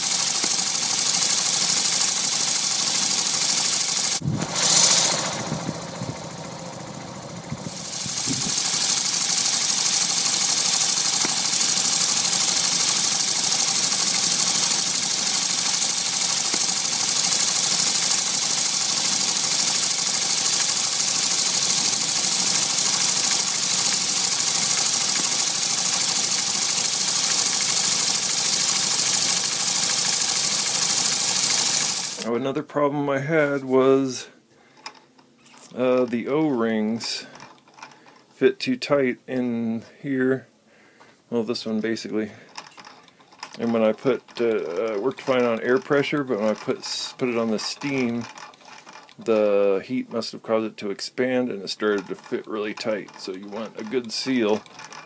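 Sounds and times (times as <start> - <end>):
steam engine hissing: 0.0 - 32.3, 42.0 - 49.8, 51.6 - 55.0.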